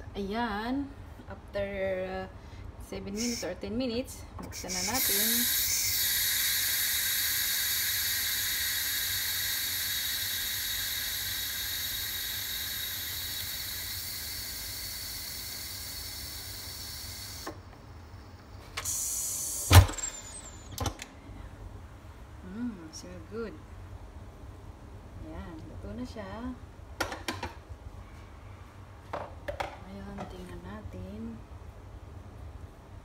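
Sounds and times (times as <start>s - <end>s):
steam valve hissing: 3.2s - 3.5s, 4.4s - 17.6s, 18.8s - 20.7s.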